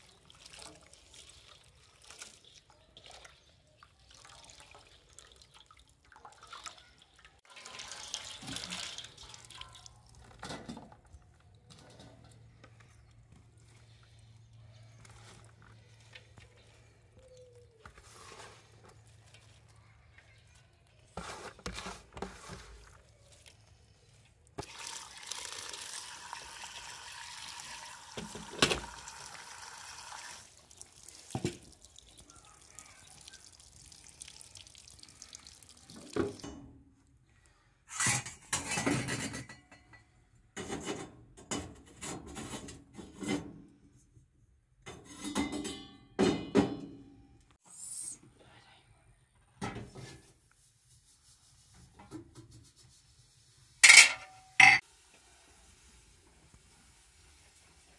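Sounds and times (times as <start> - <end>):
tap water splashing into bowl: 30.1 - 32.3.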